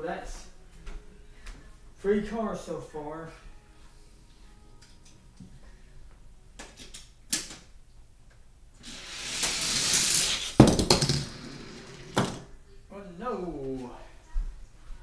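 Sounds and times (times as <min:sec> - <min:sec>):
toy car rolling on plastic track: 0:08.8 - 0:12.4
toy car landing with clatter: 0:08.9 - 0:12.5.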